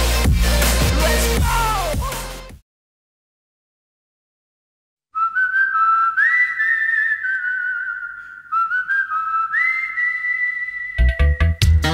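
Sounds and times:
whistled melody: 0:05.2 - 0:11.9.

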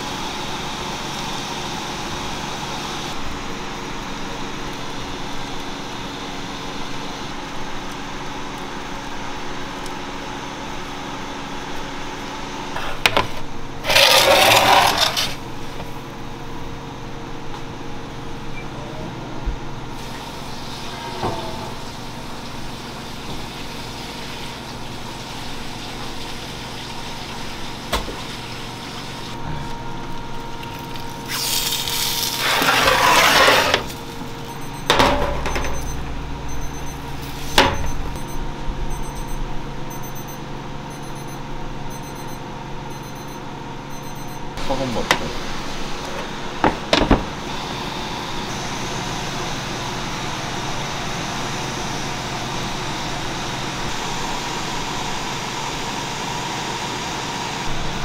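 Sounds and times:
steady machine hum: 0:00.0 - 0:58.0
electronic beeping: 0:34.4 - 0:44.6.

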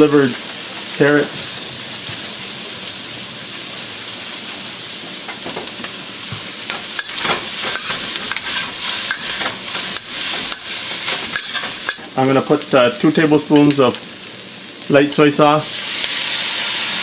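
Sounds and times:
food sizzling in oil: 0:00.0 - 0:17.0
metal spatula scraping wok: 0:06.7 - 0:12.1.

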